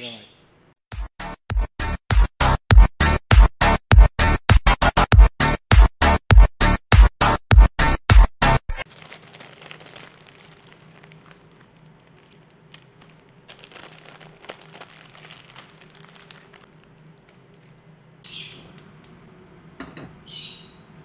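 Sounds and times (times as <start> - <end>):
plastic packets crinkling: 8.8 - 17.9
faint steady hum: 8.9 - 21.0.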